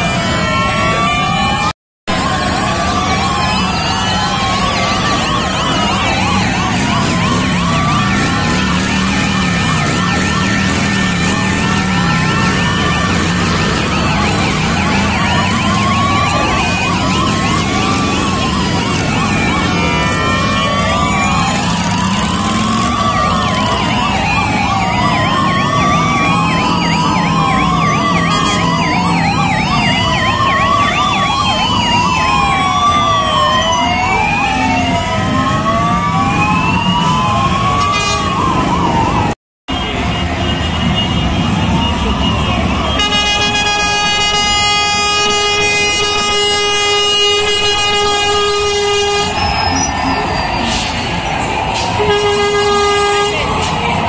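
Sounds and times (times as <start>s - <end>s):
police sirens wailing: 0.0s - 54.0s
motorcycle engines running: 5.6s - 26.0s.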